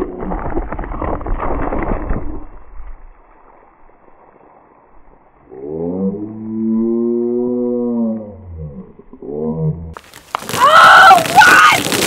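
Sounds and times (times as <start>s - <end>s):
cola spraying with crackling fizz: 10.0s - 12.0s.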